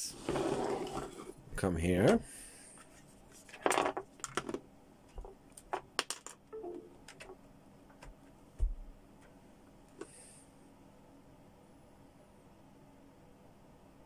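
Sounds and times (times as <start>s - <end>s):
plastic clicks and rattles: 5.6s - 6.4s.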